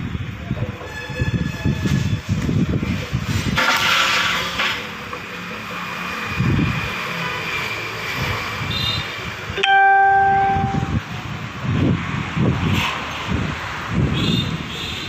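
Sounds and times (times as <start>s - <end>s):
outdoor background noise: 0.0s - 15.0s
loud horn-like tone: 9.7s - 11.0s.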